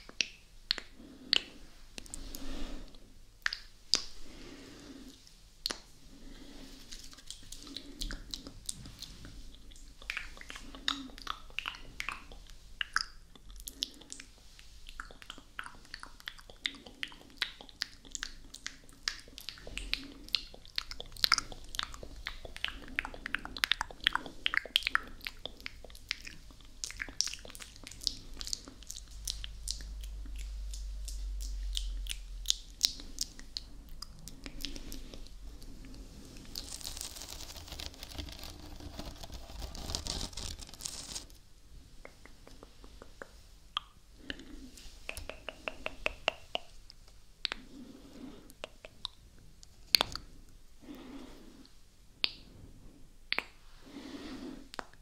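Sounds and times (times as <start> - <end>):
wet mouth clicks and smacks: 0.0 - 2.2, 3.4 - 4.2, 5.6 - 5.9, 7.0 - 36.0, 42.0 - 47.7, 48.5 - 49.2, 49.9 - 50.3, 53.3 - 53.6, 54.7 - 55.0.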